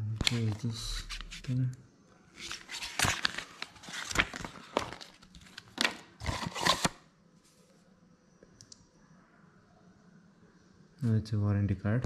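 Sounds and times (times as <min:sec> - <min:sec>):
paper packaging rustling: 0:00.2 - 0:01.6, 0:02.3 - 0:07.0
faint clicks: 0:08.4 - 0:08.9.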